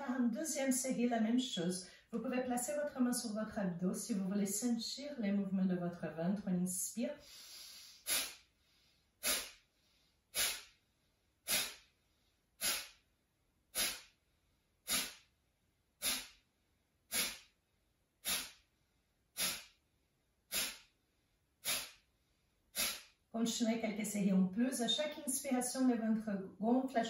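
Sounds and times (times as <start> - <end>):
sharp nasal exhalations: 7.2 - 10.8, 11.5 - 12.0, 12.6 - 13.0, 13.7 - 14.2, 14.8 - 15.3, 16.0 - 16.4, 17.1 - 17.5, 18.2 - 18.6, 19.4 - 19.8, 20.5 - 20.9, 21.6 - 22.1, 22.7 - 23.2.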